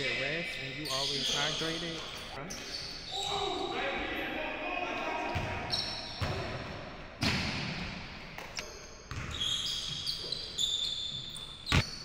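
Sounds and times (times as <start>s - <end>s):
sneakers squeaking on hardwood: 0.8s - 3.6s, 5.3s - 6.5s, 8.6s - 12.0s.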